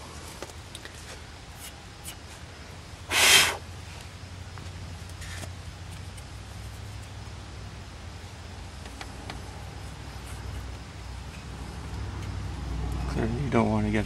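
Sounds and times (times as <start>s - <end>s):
low background hum: 0.0s - 14.0s
person snorting: 3.1s - 3.6s.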